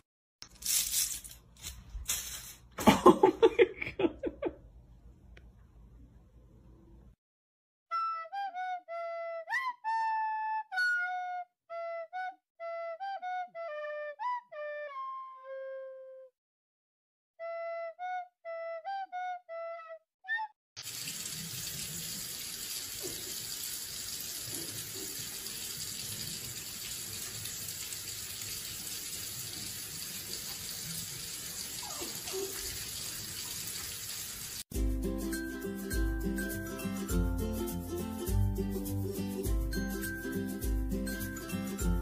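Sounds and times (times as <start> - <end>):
music: 7.9 - 16.4, 17.4 - 20.6, 34.7 - 42.0
water running from tap into sink: 20.8 - 34.7.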